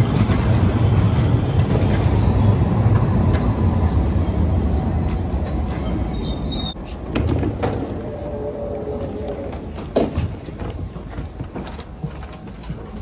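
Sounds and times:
train rumbling: 0.0 - 13.0
train brake squeal: 2.0 - 6.8.

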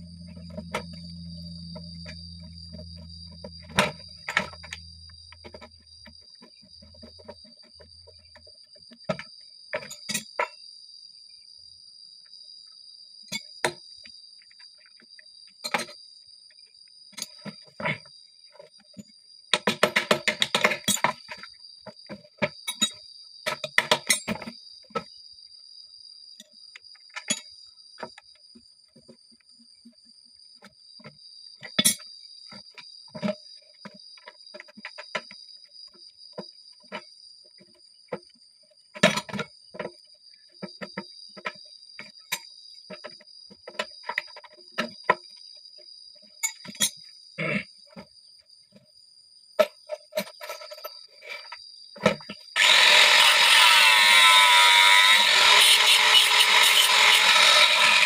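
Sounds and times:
high insect buzz: 0.0 - 9.0, 52.3 - 58.0
tools clinking on metal parts: 0.1 - 6.2, 9.1 - 10.6, 15.6 - 16.0, 19.6 - 21.5, 22.5 - 24.5, 27.1 - 27.5, 31.6 - 32.1, 46.4 - 47.1, 49.6 - 58.0.

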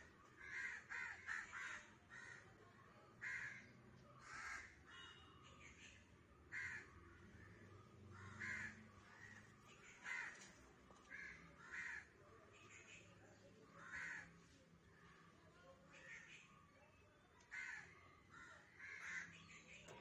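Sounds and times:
crow cawing: 0.4 - 2.4, 3.2 - 5.1, 6.5 - 12.2, 13.8 - 14.3, 17.5 - 19.5.

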